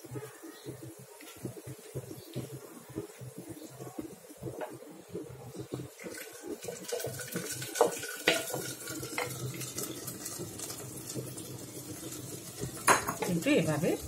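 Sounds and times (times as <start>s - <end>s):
meat splashing into pot: 6.0s - 13.4s.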